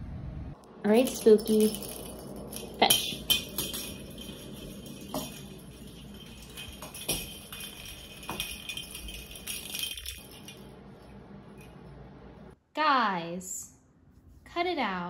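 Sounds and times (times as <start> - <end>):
bell ball jingling and rolling: 0.9 - 11.9.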